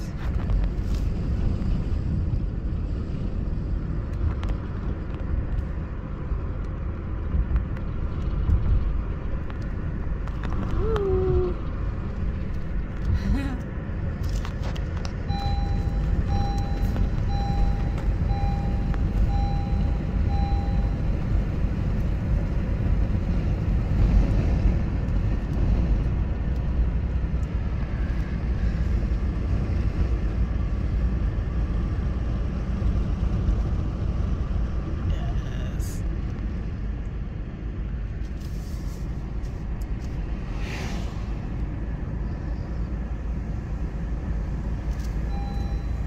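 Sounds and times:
car engine and tyre rumble: 0.0s - 46.0s
electronic chime beeping: 15.3s - 21.0s.

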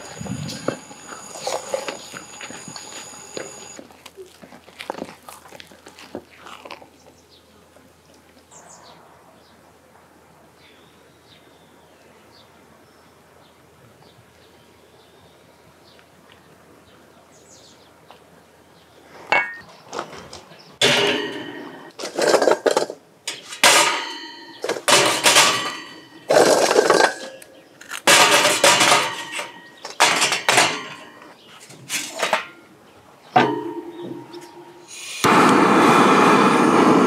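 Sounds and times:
charcoal clattering against metal: 20.8s - 32.6s.

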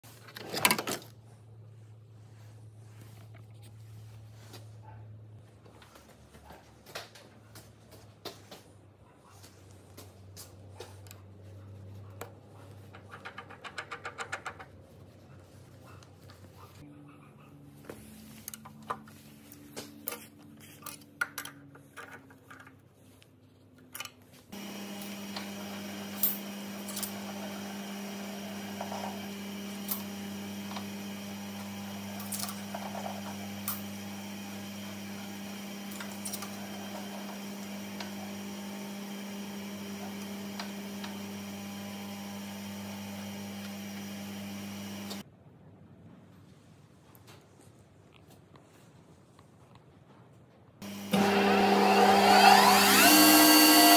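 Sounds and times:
electric motor humming: 24.6s - 45.2s, 50.8s - 53.9s.

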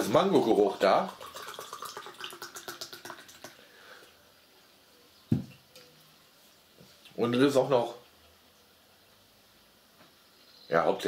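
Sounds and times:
fizzy drink poured into glass: 0.0s - 4.1s
can set down on table: 5.3s - 5.6s.

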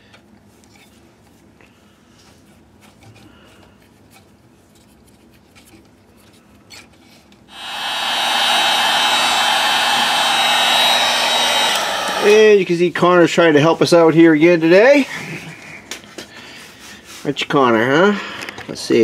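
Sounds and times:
heat gun blowing with fan whine: 7.5s - 12.8s.

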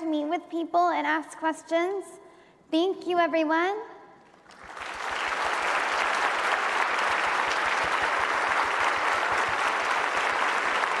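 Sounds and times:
large audience applauding: 4.4s - 11.0s.

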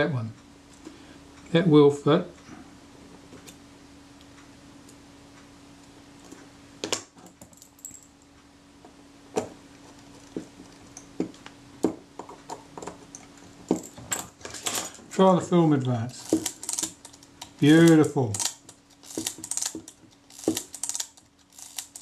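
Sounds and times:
faint steady hum: 0.0s - 22.0s
tweezers clicking on metal parts: 16.2s - 22.0s.

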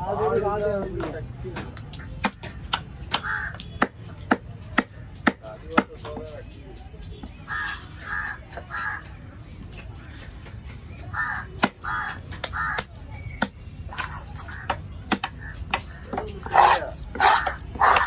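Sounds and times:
crows cawing: 3.1s - 3.6s, 7.5s - 9.1s, 11.1s - 12.9s.

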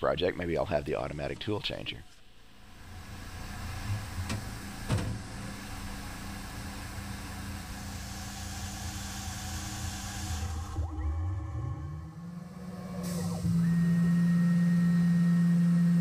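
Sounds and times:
milling machine humming and hissing: 2.6s - 11.1s, 12.1s - 16.0s.

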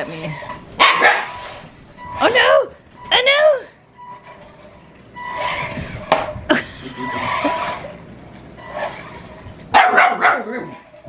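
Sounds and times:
toy truck motor whining: 4.3s - 6.2s, 7.0s - 8.0s.

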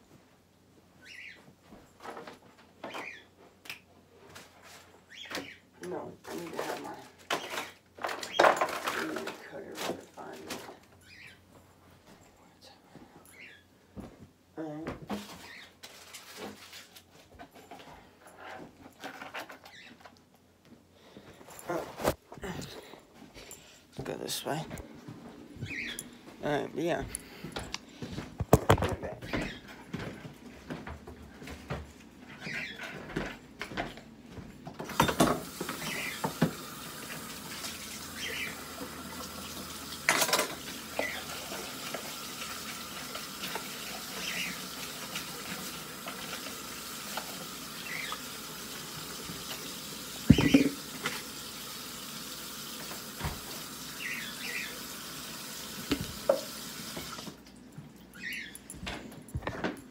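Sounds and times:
tap water running: 34.8s - 57.6s.

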